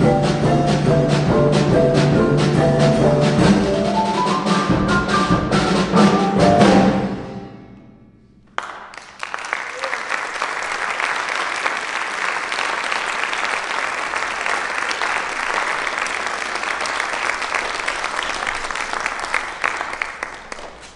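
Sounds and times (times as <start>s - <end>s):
audience applauding: 8.5s - 20.9s.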